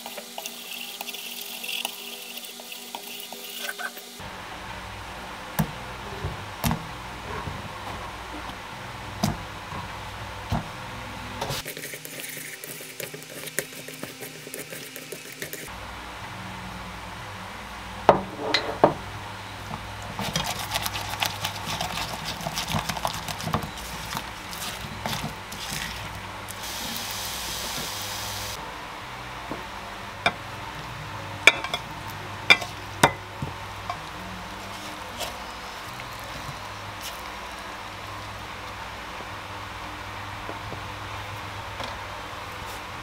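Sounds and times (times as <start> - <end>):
spatula stirring in frying pan: 0.0 - 4.2, 11.5 - 15.7, 20.0 - 28.5
light sizzle: 0.0 - 16.7, 18.6 - 43.0.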